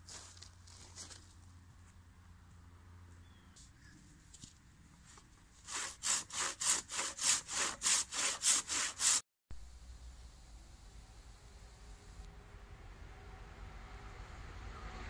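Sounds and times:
handsaw cutting wood: 5.6 - 9.3.

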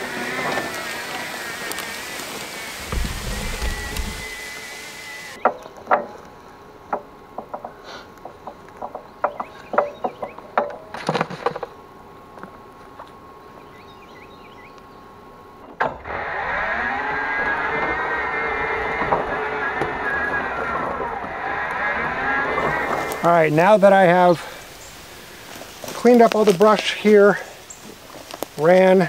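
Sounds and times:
steady hiss: 0.0 - 5.4, 22.6 - 29.0
electric mower motors whining: 0.0 - 6.4, 15.6 - 29.0
footsteps through dry grass: 1.9 - 5.1, 24.3 - 29.0.

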